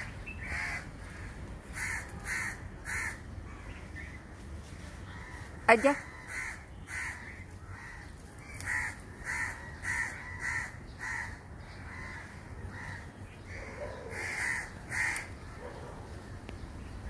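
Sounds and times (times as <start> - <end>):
crow cawing: 0.4 - 3.7, 5.1 - 15.4.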